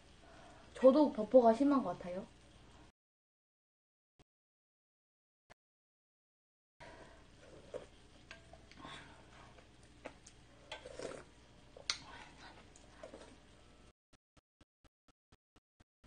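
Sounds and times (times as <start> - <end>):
soup sipped from spoon: 10.7 - 11.3.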